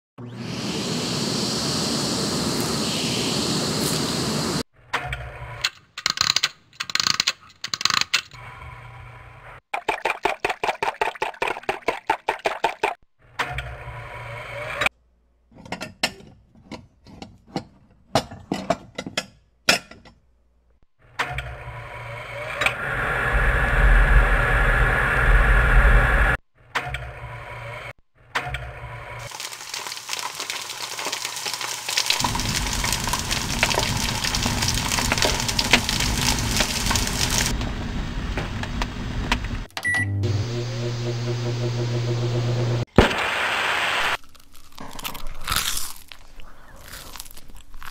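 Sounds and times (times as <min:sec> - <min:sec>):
loud noise with deep rumble: 0:22.8 - 0:26.4, 0:32.2 - 0:42.9.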